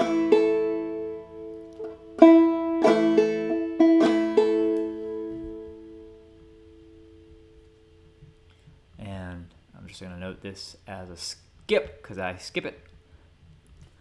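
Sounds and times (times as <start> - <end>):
banjo chord strummed: 0.0 - 8.0.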